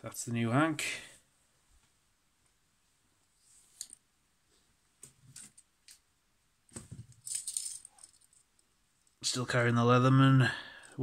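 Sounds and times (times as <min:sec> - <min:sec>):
metal tool rattling jingle: 0:07.2 - 0:08.5.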